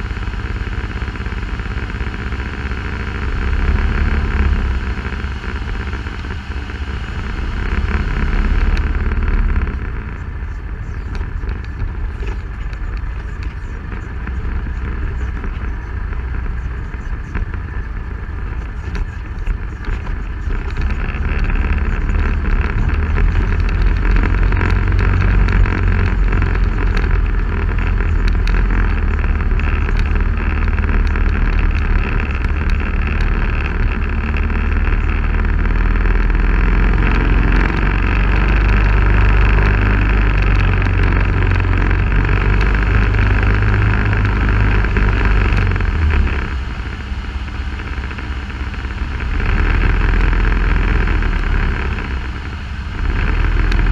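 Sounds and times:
rumble of tyres over rocks: 0.0s - 53.9s
vehicle engine running: 0.0s - 53.9s.

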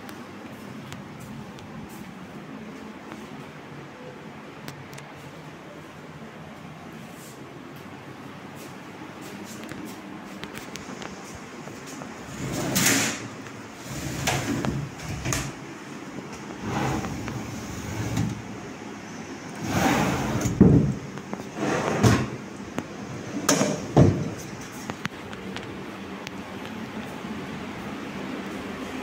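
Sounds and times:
wooden doors and drawers knocking: 20.4s - 21.0s, 23.5s - 24.4s.

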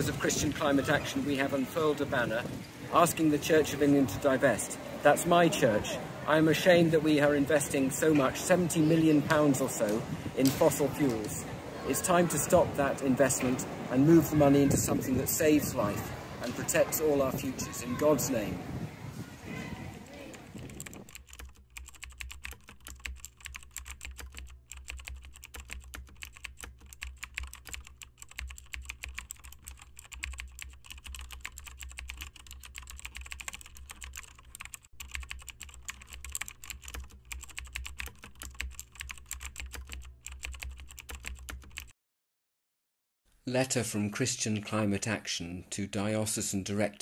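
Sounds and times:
rapid keyboard typing: 20.3s - 41.9s.

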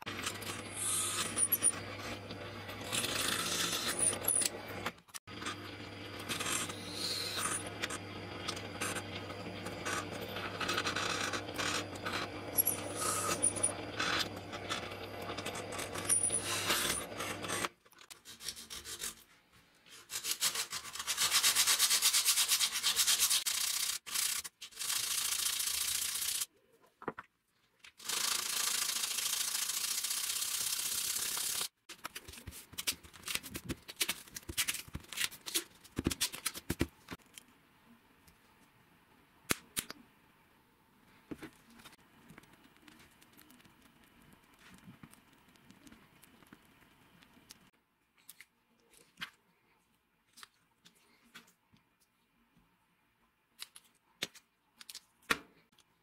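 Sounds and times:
drill press drilling: 0.1s - 17.7s
scratchy sanding: 18.2s - 19.2s, 20.0s - 26.5s.

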